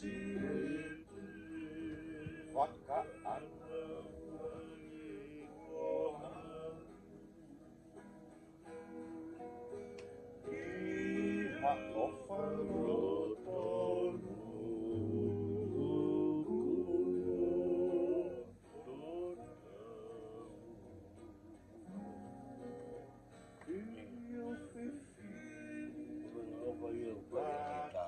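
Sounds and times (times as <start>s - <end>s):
men singing together: 0.0s - 6.9s, 10.6s - 20.6s, 23.7s - 28.0s
strummed acoustic guitar: 0.0s - 28.0s
ukulele strumming: 0.0s - 28.0s.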